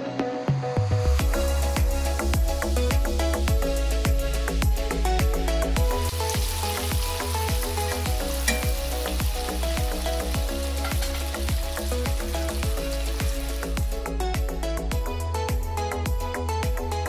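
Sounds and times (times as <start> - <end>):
background music with beat: 0.0 - 17.0
chicken sizzling in oil: 5.8 - 14.2.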